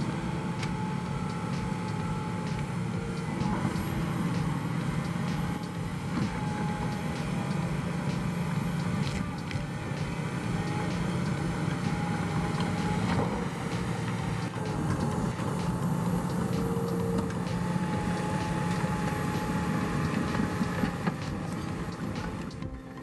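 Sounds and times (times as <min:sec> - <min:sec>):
diesel engine under load: 0:00.0 - 0:23.0
machine squeals and clicks: 0:10.5 - 0:23.0.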